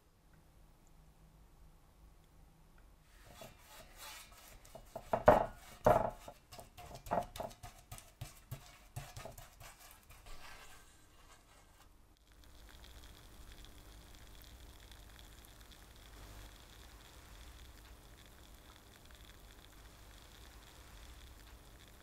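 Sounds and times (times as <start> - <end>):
paint brush scrubbing on metal: 3.2 - 11.8.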